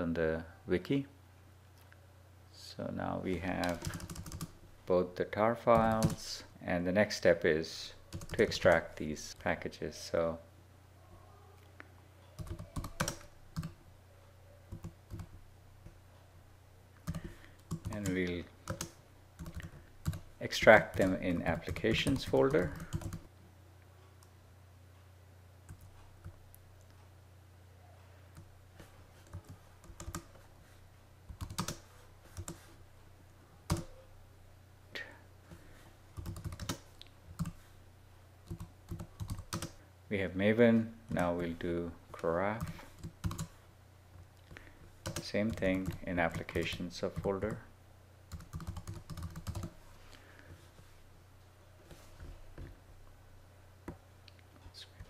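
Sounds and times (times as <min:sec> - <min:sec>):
low steady hum: 0:00.0 - 0:55.0
computer keyboard keystrokes: 0:03.6 - 0:04.5, 0:05.8 - 0:06.2, 0:12.4 - 0:13.8, 0:17.0 - 0:20.2, 0:20.9 - 0:23.2, 0:29.2 - 0:30.4, 0:31.3 - 0:31.8, 0:33.7 - 0:33.9, 0:36.2 - 0:37.6, 0:38.5 - 0:39.8, 0:42.6 - 0:43.5, 0:45.0 - 0:46.0, 0:48.3 - 0:49.7
keyboard typing clicks: 0:12.4 - 0:13.8, 0:36.2 - 0:37.6, 0:38.5 - 0:39.7.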